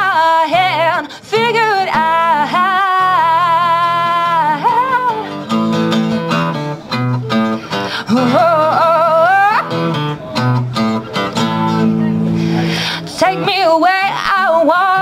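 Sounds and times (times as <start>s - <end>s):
woman singing long notes: 0.0s - 5.4s, 8.1s - 9.8s, 13.0s - 15.0s
acoustic guitar strummed: 0.0s - 15.0s.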